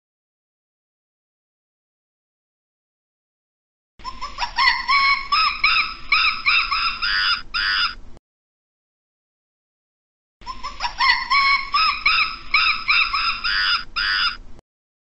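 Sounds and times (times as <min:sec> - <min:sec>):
primate calling: 0:04.0 - 0:08.0, 0:10.4 - 0:14.5.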